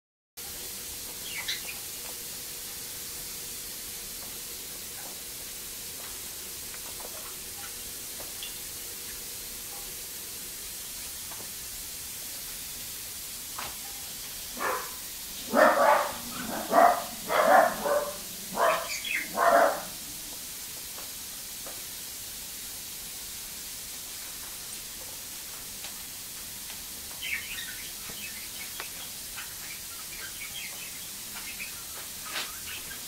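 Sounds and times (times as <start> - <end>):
parrot squawks: 14.6 - 20.0.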